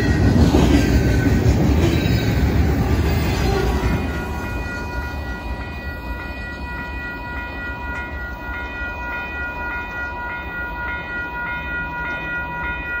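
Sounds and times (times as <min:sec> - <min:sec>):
train rumble: 0:00.0 - 0:13.0
level crossing bell ringing: 0:03.9 - 0:13.0.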